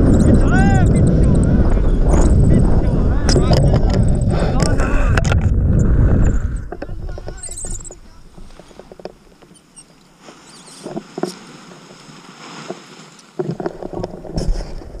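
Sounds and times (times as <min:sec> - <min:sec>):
wind on microphone: 0:00.0 - 0:09.1.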